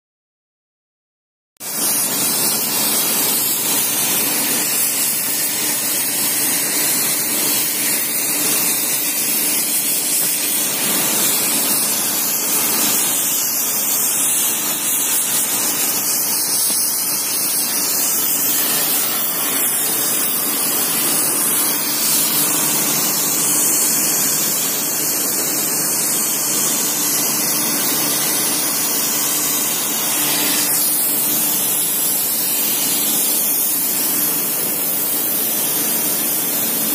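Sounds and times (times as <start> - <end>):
machinery hiss: 7.5 - 36.5.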